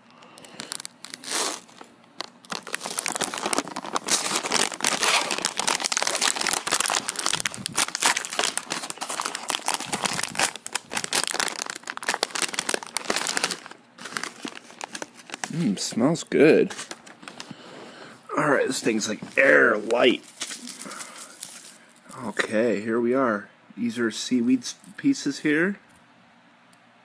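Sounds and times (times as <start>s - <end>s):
plastic wrapper crinkling: 0.1s - 16.0s, 16.6s - 17.5s, 19.1s - 22.2s.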